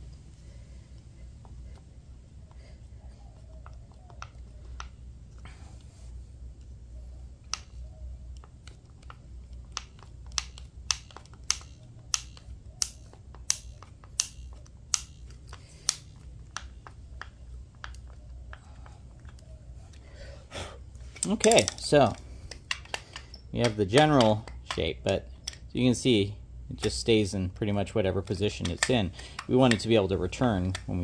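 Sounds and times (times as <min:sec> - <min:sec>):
screwdriver clicking driving screw: 0:07.5 - 0:18.2.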